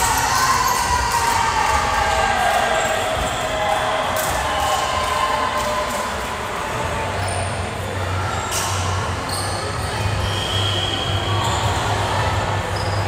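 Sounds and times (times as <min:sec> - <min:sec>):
high squeak: 0:08.4 - 0:11.6.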